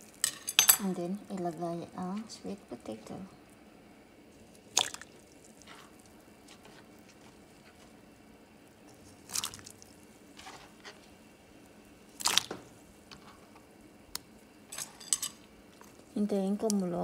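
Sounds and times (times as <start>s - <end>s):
food splashing into water: 4.7s - 6.0s, 9.2s - 10.0s, 12.2s - 12.7s.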